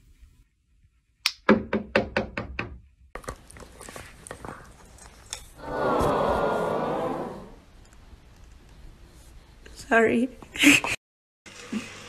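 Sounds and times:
rapid knocking on a door: 0:01.5 - 0:02.8.

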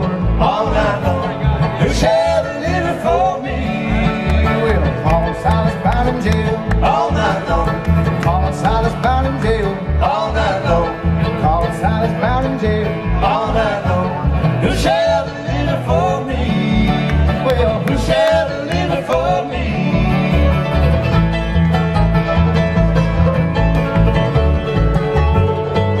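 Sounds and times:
acoustic guitar flatpicking: 0:00.0 - 0:26.0
upright bass thumping: 0:00.0 - 0:26.0.

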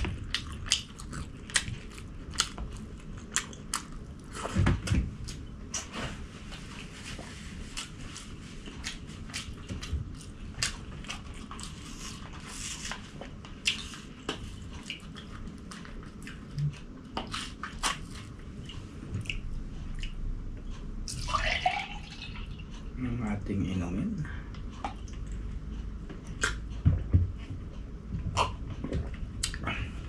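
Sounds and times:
wet chewing and lip smacks: 0:00.2 - 0:04.2, 0:13.6 - 0:20.2, 0:26.2 - 0:26.6, 0:29.4 - 0:29.6.

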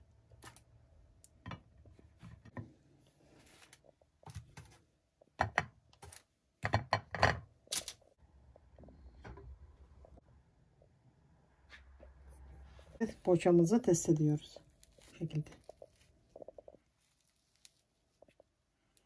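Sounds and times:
pastry and utensils knocking dishes: 0:05.4 - 0:05.8, 0:06.6 - 0:07.5.

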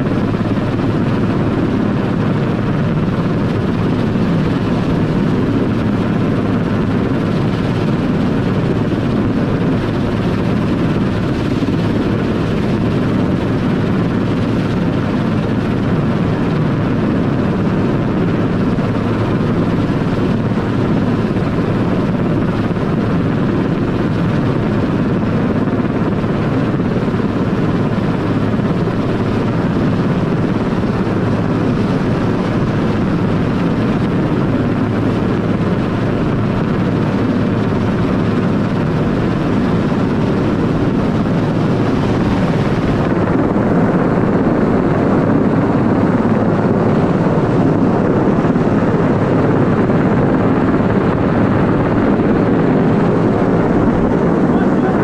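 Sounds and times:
helicopter hovering overhead: 0:00.0 - 0:55.0.

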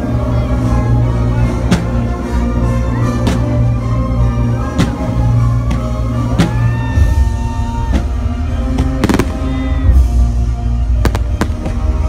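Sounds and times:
loud music: 0:00.0 - 0:12.0
fireworks bangs: 0:08.0 - 0:10.0, 0:11.0 - 0:12.0.

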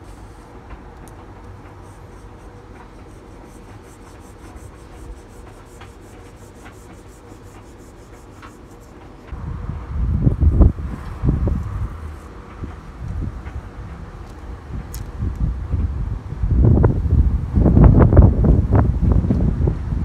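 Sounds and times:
fingertips rubbing decal: 0:00.0 - 0:09.3
steady low rumble: 0:00.0 - 0:20.0.

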